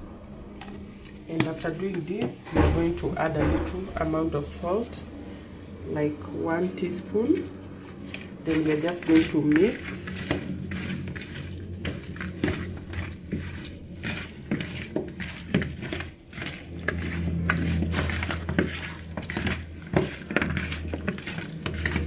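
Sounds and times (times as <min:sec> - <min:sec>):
low steady hum: 0:00.0 - 0:22.0
hands squishing raw chicken: 0:07.7 - 0:22.0.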